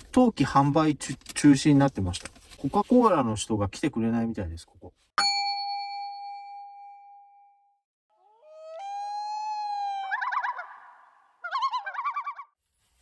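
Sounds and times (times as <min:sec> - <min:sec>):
bell-like ding: 0:05.2 - 0:07.8.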